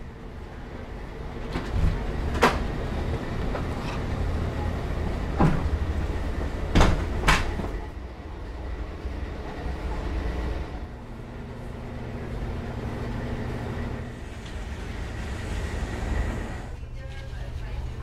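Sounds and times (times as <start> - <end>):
low room noise rumble: 0.0 - 18.0.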